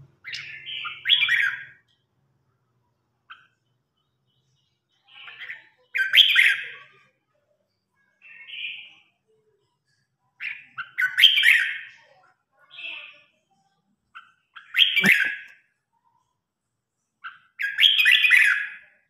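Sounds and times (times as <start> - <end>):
bird singing bright phrases: 0.0 - 2.1, 3.3 - 7.1, 7.7 - 9.4, 10.4 - 15.6, 17.2 - 19.0.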